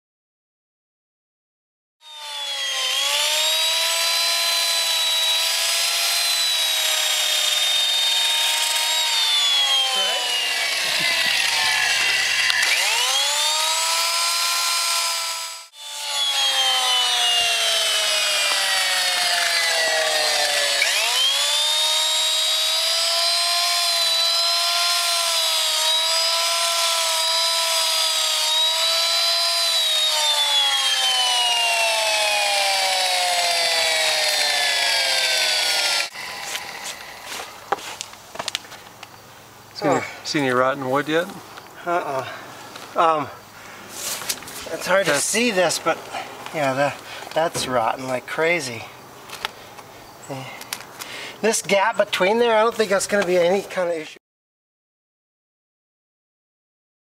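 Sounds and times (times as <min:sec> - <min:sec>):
sander grinding fiberglass: 0:02.0 - 0:38.8, 0:40.9 - 0:48.6.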